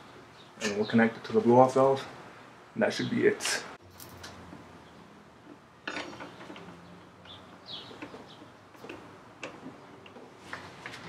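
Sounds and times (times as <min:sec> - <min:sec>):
hands rustling hose and fittings: 0:03.8 - 0:04.7, 0:05.3 - 0:11.0
bird chirping: 0:06.1 - 0:09.0.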